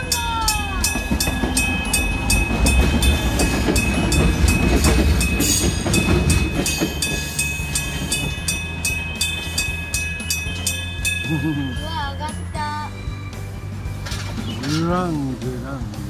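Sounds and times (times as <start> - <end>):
train wheels rumbling and clattering: 0.0 - 12.1, 13.4 - 16.0
level crossing alarm ringing: 0.0 - 12.2.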